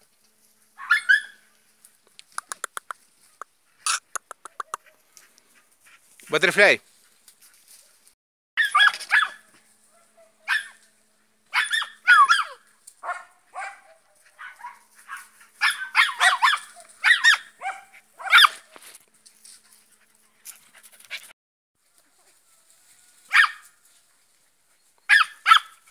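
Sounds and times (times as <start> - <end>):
puppy yapping: 0.8 - 1.4, 8.6 - 10.8, 11.5 - 18.8, 25.1 - 25.8.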